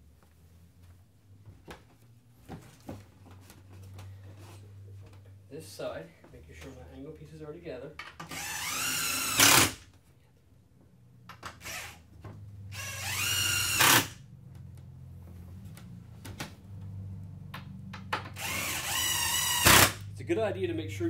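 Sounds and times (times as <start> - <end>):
cordless drill driving screws: 8.2 - 9.8, 11.4 - 12.0, 12.7 - 14.2, 18.4 - 20.0.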